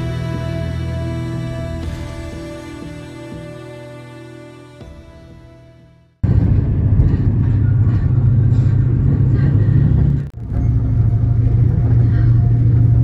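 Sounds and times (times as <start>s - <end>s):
bus engine and road rumble: 6.2s - 13.0s.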